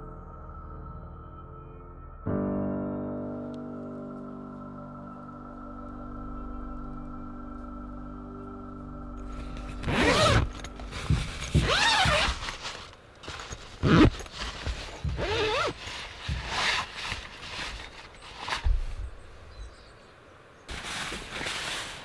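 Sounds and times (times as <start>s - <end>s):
zipper being pulled open: 9.3s - 18.7s.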